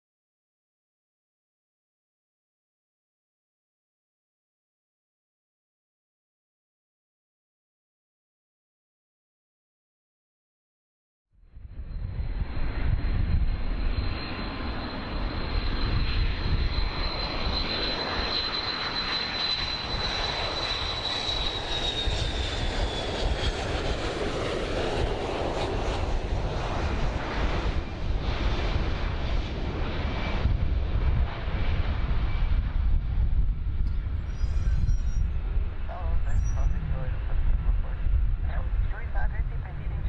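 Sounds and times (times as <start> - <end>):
jet airliner roaring overhead: 11.5 - 40.0
high thin jet whine: 33.8 - 37.1.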